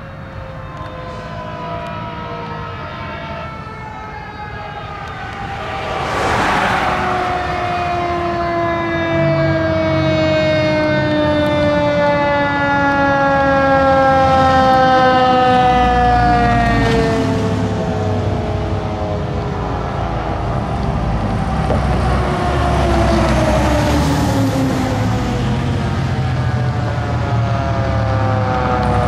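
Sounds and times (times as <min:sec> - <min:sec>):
fire engine siren wailing: 0:00.0 - 0:29.0
truck engine rumble: 0:00.0 - 0:29.0
brief rushing noise: 0:05.5 - 0:08.0.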